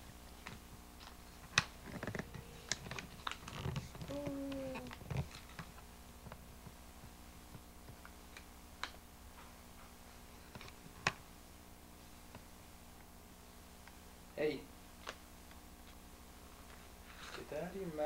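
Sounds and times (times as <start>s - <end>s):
stiff paper crinkling: 1.0s - 5.6s
baby vocal sound: 3.9s - 5.0s.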